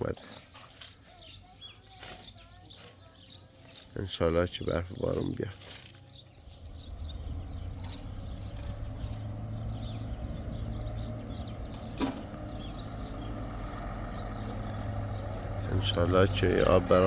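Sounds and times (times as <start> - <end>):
truck engine running: 6.4 - 17.0.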